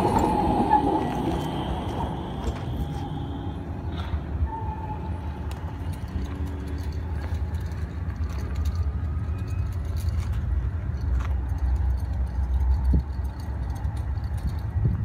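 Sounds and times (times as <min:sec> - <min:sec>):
wind buffeting microphone: 0:00.0 - 0:04.4, 0:10.2 - 0:15.0
distant city traffic: 0:00.0 - 0:15.0.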